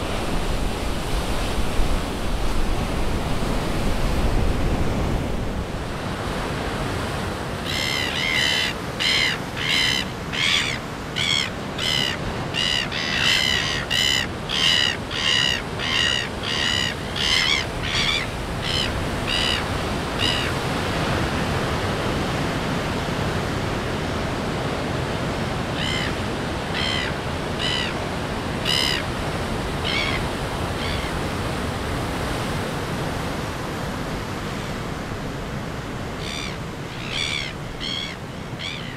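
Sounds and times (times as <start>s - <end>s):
gull calling: 7.6s - 20.6s, 25.7s - 28.0s, 28.6s - 29.1s, 29.8s - 31.2s, 36.2s - 38.9s.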